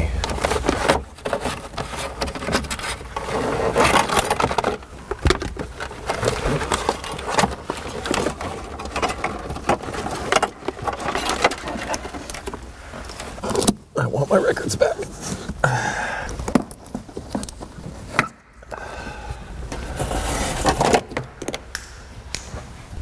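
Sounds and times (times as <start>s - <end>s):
wiring rustling: 0.0s - 15.7s, 16.3s - 18.7s.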